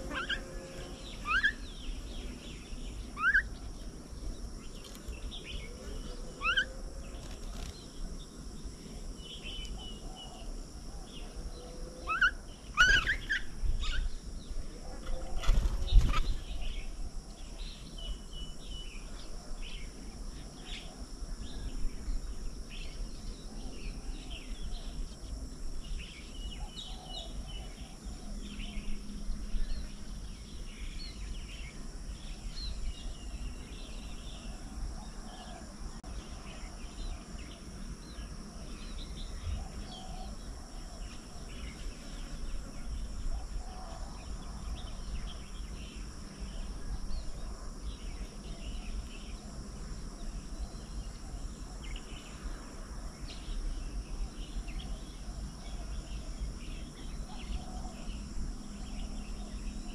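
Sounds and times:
birds chirping: 0.0s - 19.1s
high insect drone: 0.0s - 59.9s.

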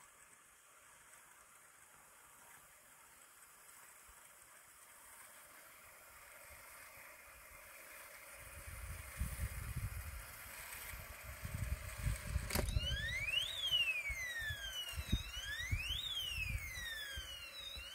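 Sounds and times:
click: 12.4s - 12.9s
wailing electronic siren: 12.6s - 17.9s.

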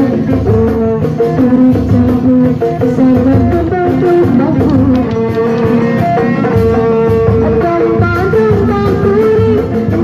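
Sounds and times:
band accompaniment over loudspeaker: 0.0s - 10.0s
woman singing into a microphone: 7.1s - 10.0s.

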